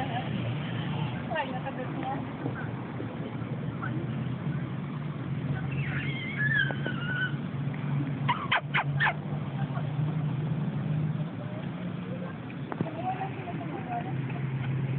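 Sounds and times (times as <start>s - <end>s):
puppy yipping: 5.7s - 7.4s, 8.3s - 9.2s
puppy whining: 5.8s - 7.4s.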